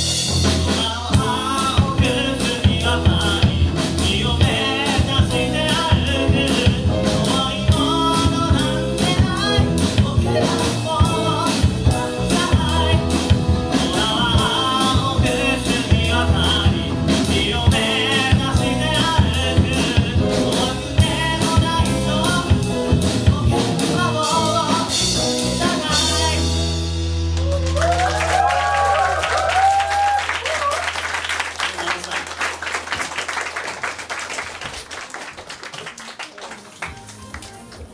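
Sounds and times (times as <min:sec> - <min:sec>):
live rock band with singer: 0:00.0 - 0:27.6.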